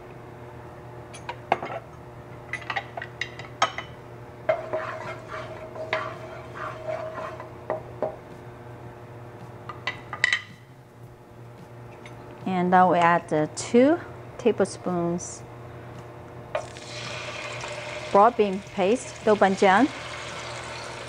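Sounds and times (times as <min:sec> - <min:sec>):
low steady hum: 0:00.0 - 0:21.0
spatula stirring oil in wok: 0:04.5 - 0:07.5.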